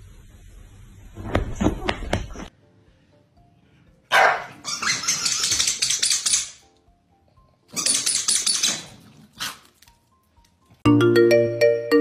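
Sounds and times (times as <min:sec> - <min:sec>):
quiet background music: 0:00.9 - 0:12.0
dog claws skittering on tile: 0:04.8 - 0:06.6.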